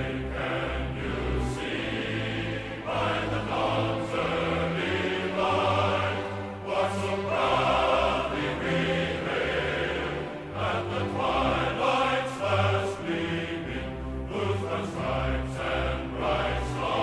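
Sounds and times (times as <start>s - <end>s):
choir singing sustained chords: 0.0s - 17.0s.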